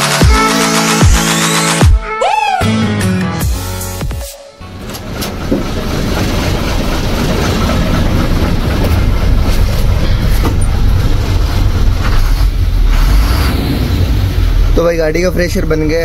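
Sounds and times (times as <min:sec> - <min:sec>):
truck diesel engine idling: 0:04.6 - 0:12.8.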